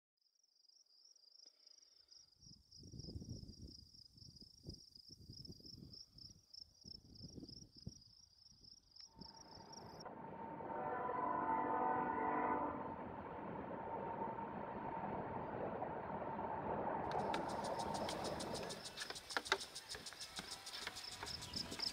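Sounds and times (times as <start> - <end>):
wind gusts on microphone: 2.8 - 8.1, 9.2 - 21.9
freight train running: 9.1 - 21.9
locomotive horn: 9.3 - 15.4
warbling insect trill: 17.1 - 21.9.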